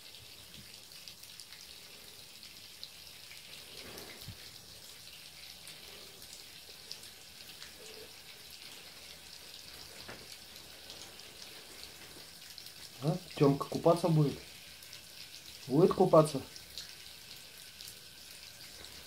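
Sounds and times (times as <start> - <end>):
tap water stream spattering: 0.0 - 1.7, 3.2 - 15.9
drip-like ticks: 0.1 - 13.5, 16.5 - 19.0.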